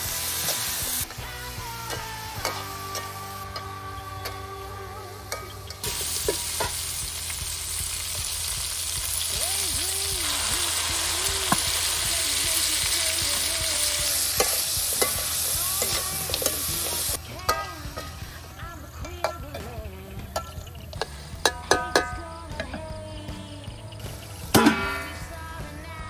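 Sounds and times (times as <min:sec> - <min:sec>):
food sizzling in oil: 0:00.0 - 0:20.5
metal spatula scraping a wok: 0:05.2 - 0:07.0, 0:12.7 - 0:18.6.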